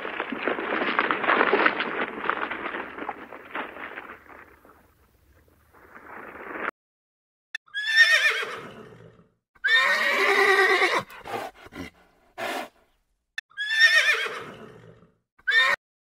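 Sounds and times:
horse whinnying: 0:07.7 - 0:12.7, 0:13.5 - 0:15.8.

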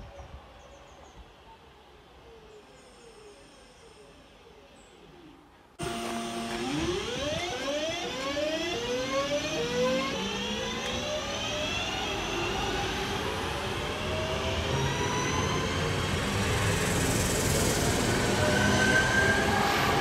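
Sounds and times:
electric train inverters whining: 0:05.8 - 0:20.0.

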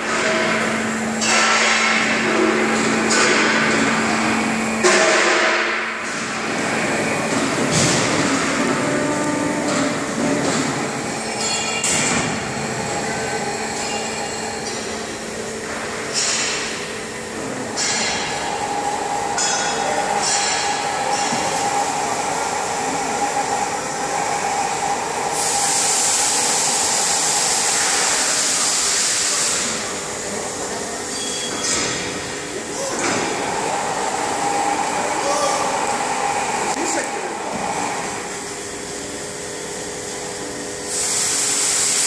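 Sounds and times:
scissor lift power unit whine: 0:00.0 - 0:28.7, 0:29.5 - 0:42.0
loud hydraulic hiss: 0:20.0 - 0:30.4, 0:40.8 - 0:42.0.

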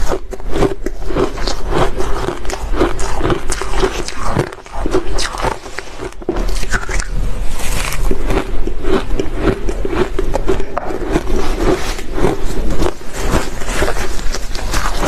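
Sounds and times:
chewing crunchy shaved ice: 0:00.0 - 0:15.0.

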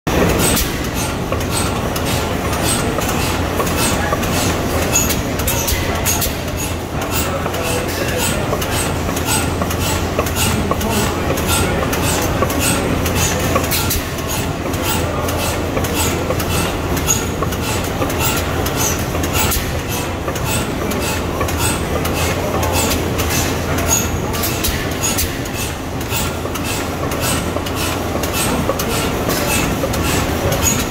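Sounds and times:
gas engine clicking rhythmically: 0:00.1 - 0:30.9.

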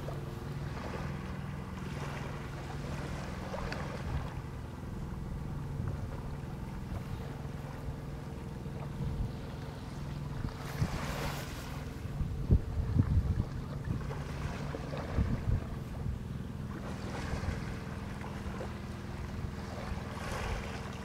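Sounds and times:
boat engine idling: 0:00.0 - 0:21.0
wind on microphone: 0:10.2 - 0:16.2.

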